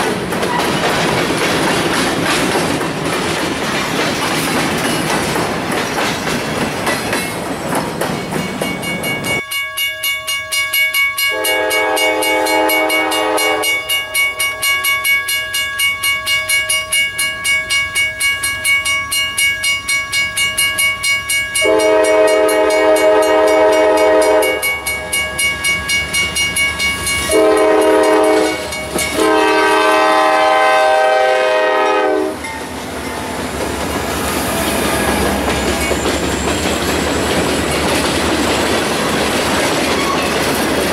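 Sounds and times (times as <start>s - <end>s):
train wheels clattering over rail joints: 0.0s - 8.9s, 32.5s - 40.9s
crossing bell ringing: 5.9s - 39.2s
locomotive air horn: 11.3s - 14.0s, 21.6s - 24.8s, 27.3s - 32.4s.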